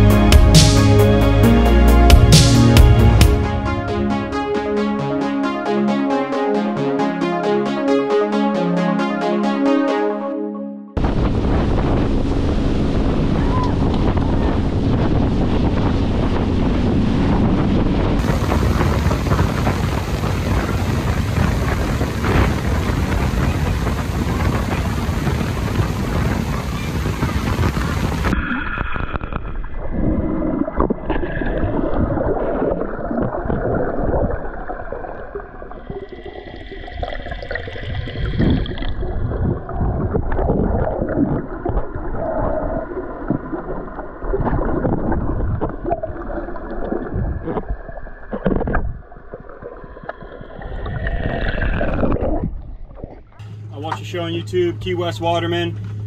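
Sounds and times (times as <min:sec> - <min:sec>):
wind buffeting microphone: 0:11.0 - 0:34.5, 0:37.8 - 0:46.4
underwater gurgling and bubbling: 0:11.0 - 0:53.4
water rushing past boat: 0:11.0 - 0:56.0
underwater clicks and knocks: 0:43.2 - 0:53.4.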